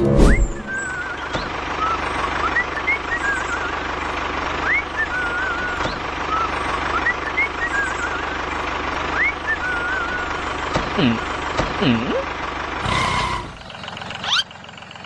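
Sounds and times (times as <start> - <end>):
rising chirps and warbling whistles: 0.0 - 3.8.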